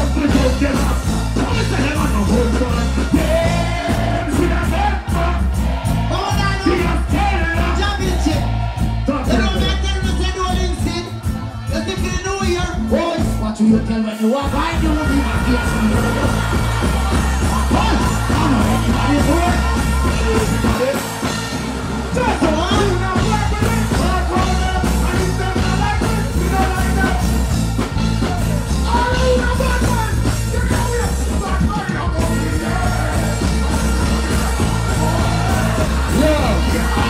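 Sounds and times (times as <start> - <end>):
deejays chanting and singing: 0.0 - 37.0
heavy bass riddim: 0.0 - 37.0.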